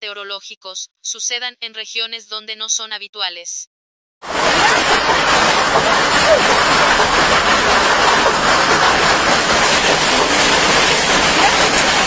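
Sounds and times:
hail and heavy rain pelting: 4.3 - 12.0.

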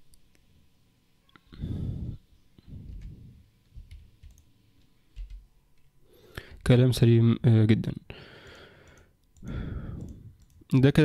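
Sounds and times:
computer mouse clicks: 3.8 - 5.9, 8.8 - 10.6.

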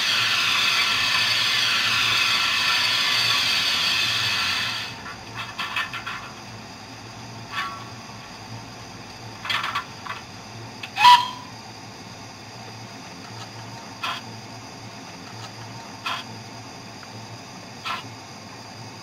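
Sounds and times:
sharp clicks and hisses: 0.0 - 6.4
high whistle-like tone: 11.0 - 11.5.

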